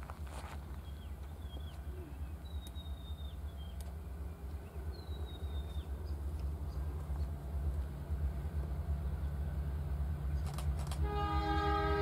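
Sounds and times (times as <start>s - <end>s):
steady low rumble: 0.0s - 11.0s
birds whistling: 0.8s - 3.8s, 4.6s - 6.8s.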